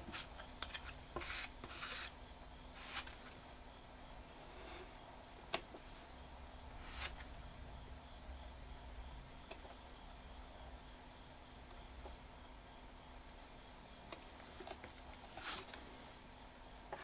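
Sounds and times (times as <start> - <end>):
spatula scraping putty: 0.1 - 2.2.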